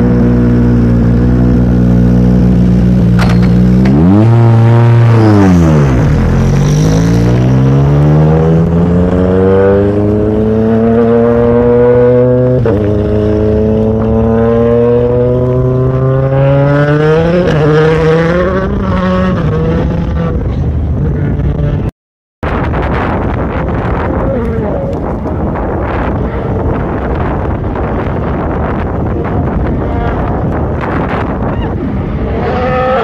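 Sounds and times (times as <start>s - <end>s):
rally car engine accelerating: 0.0s - 21.9s.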